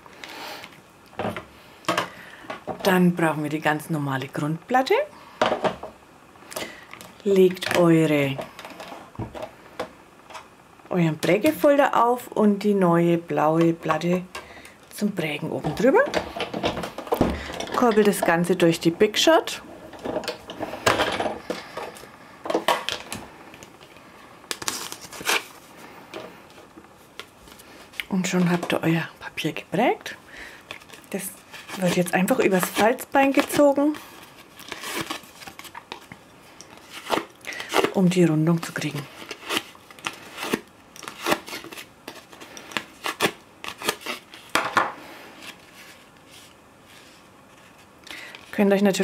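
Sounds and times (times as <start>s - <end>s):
plastic plates scraping and rustling: 15.6s - 23.6s.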